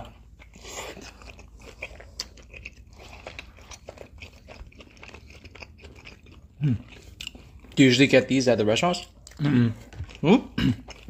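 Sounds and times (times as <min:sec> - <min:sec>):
crunchy chewing: 0:00.0 - 0:11.0.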